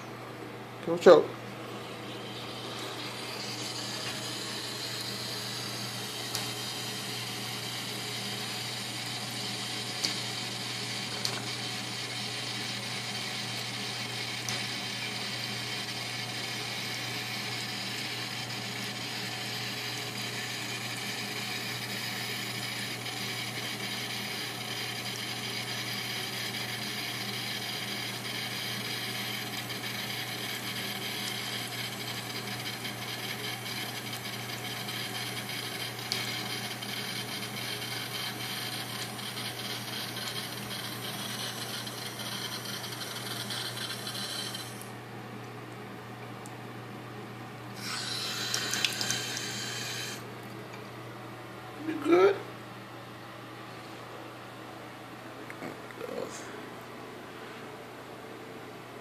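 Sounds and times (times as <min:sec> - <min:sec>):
tap water running into sink: 0:47.8 - 0:50.2.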